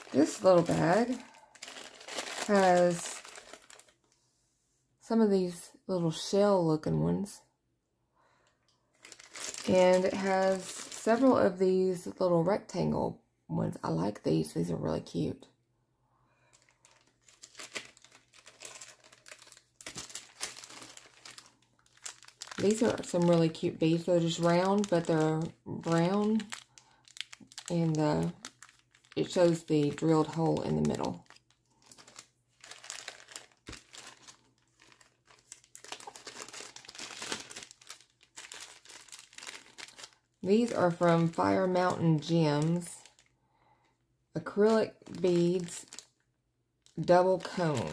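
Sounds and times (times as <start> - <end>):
plastic bags crinkling: 0.0 - 4.1, 8.9 - 11.6, 16.4 - 43.3, 44.4 - 46.2, 46.8 - 47.9.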